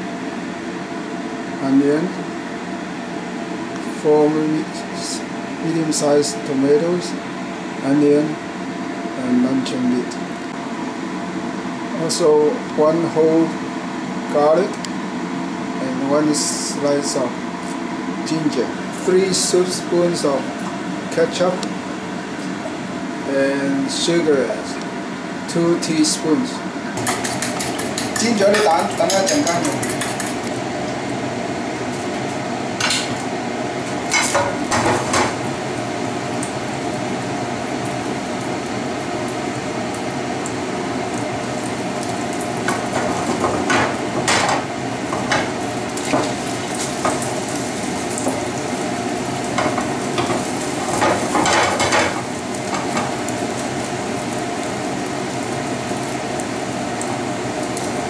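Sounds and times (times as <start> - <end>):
eggs sizzling in a frying pan: 26.9 - 58.0
spatula scraping and knocking pan: 27.0 - 30.4.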